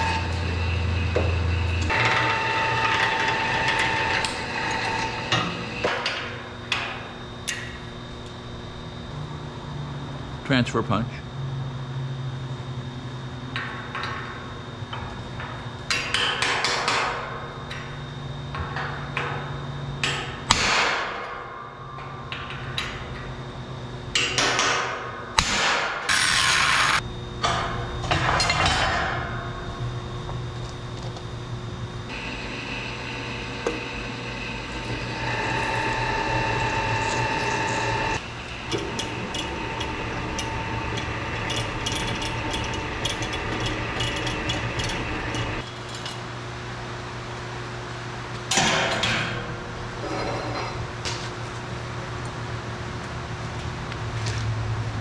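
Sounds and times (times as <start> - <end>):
drill press running: 0.0 - 7.2, 32.0 - 46.2
angle grinder grinding steel: 32.1 - 45.6.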